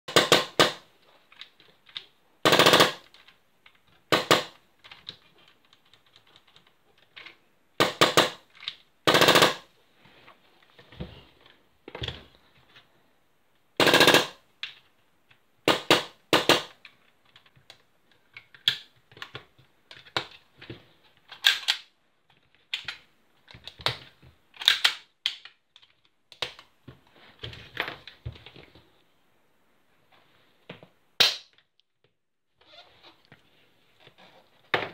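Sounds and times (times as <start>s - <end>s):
plastic parts clicking: 14.0s - 26.7s.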